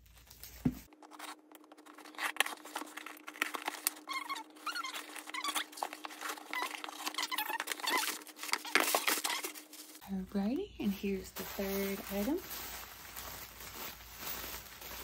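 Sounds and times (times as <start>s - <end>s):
cardboard and tape squeaking: 0.3s - 10.0s
knife slitting packing tape: 1.0s - 9.6s.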